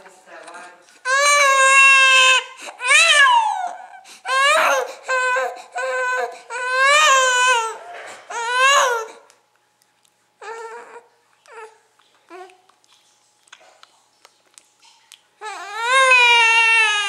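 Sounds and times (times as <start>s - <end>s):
infant crying: 1.0s - 9.3s, 10.4s - 12.5s, 15.4s - 17.0s.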